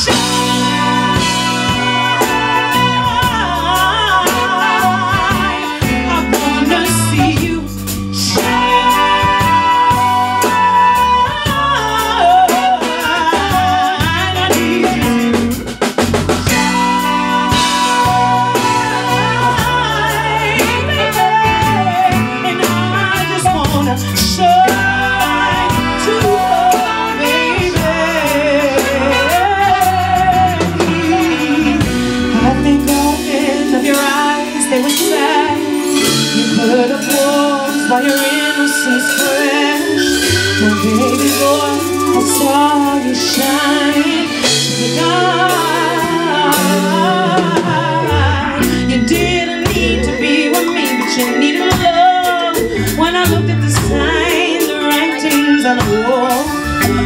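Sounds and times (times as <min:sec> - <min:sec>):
band playing: 0:00.0 - 0:57.0
woman singing soul: 0:00.0 - 0:57.0.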